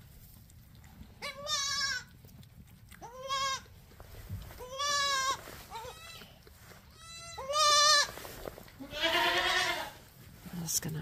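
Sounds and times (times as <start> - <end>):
goats bleating: 1.2 - 2.1, 3.0 - 3.7, 4.6 - 8.1, 8.8 - 10.0.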